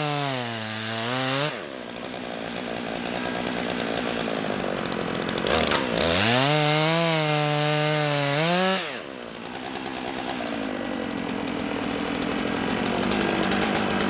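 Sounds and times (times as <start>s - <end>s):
chainsaw cutting log: 0.0s - 14.0s
steady engine hum: 9.0s - 14.0s.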